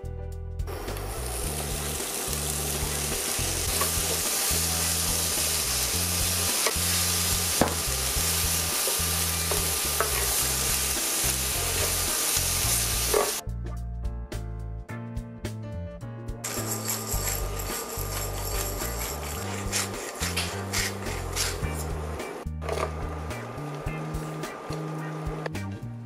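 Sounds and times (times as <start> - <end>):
food sizzling in a pan: 0.7 - 13.4, 16.4 - 22.2.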